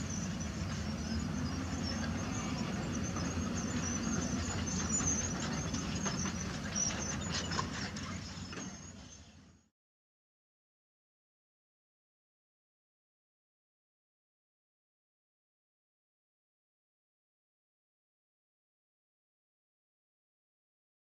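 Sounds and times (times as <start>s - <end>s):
heavy diesel engines running: 0.0s - 9.6s.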